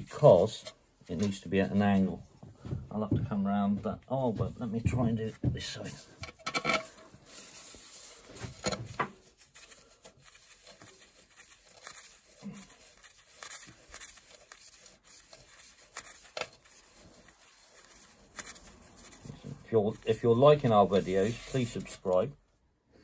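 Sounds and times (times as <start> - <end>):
soft rubbing and rustling: 4.1 - 22.4.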